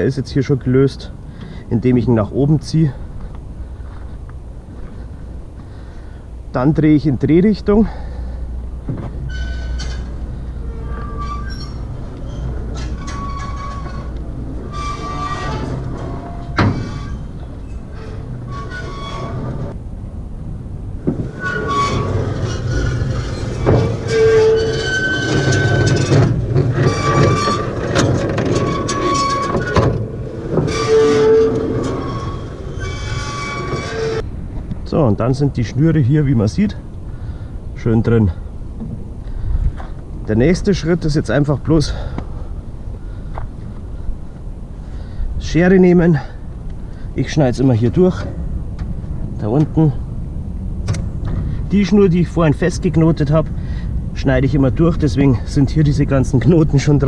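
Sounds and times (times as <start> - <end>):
metal mechanism squeaking: 9.2 - 19.8, 21.2 - 34.2.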